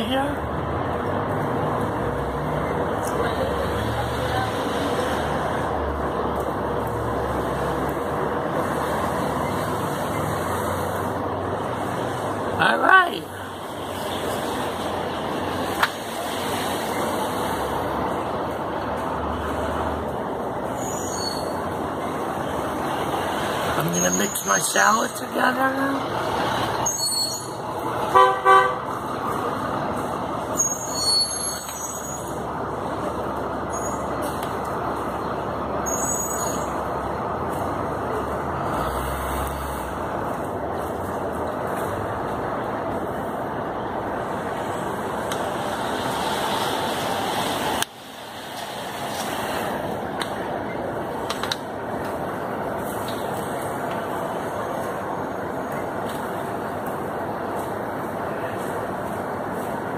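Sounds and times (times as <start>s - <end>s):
low street rumble: 0.0s - 59.9s
street noise hiss: 0.0s - 59.9s
vehicle horn toots: 28.1s - 28.8s.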